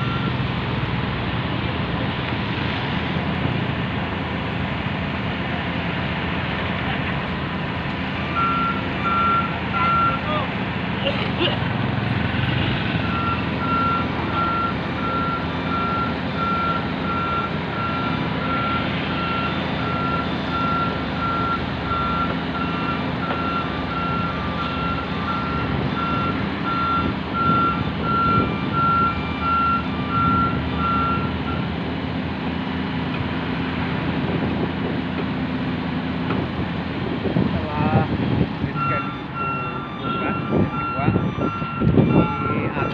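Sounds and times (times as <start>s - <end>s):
heavy machine engine running: 0.0s - 42.9s
warning alarm beeping: 13.0s - 31.7s, 38.7s - 42.9s.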